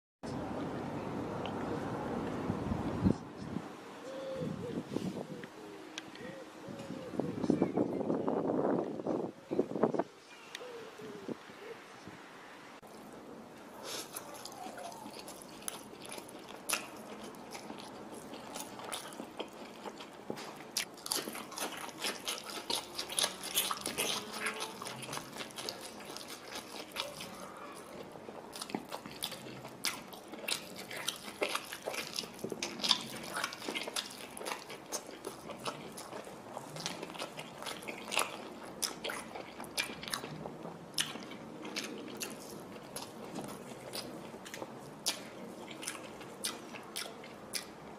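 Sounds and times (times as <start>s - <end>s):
person chewing and crunching: 12.8s - 47.8s.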